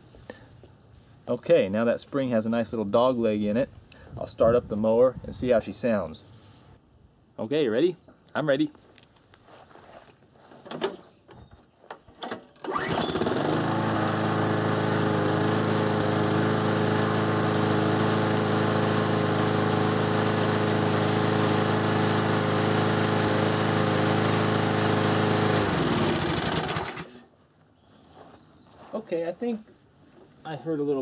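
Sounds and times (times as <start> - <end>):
lawn mower engine running: 12.6 - 27.1.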